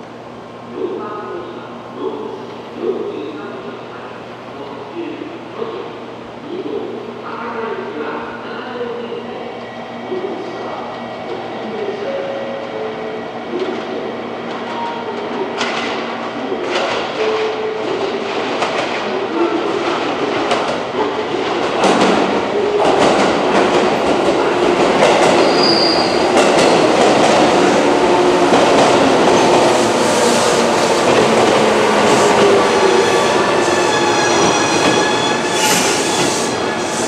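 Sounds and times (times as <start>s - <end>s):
high-pitched brake squeal: 25.4s - 26.2s, 32.8s - 37.0s.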